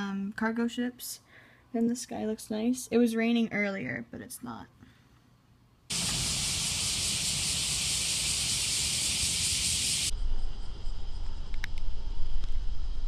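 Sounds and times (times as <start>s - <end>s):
loud hiss: 5.9s - 10.1s.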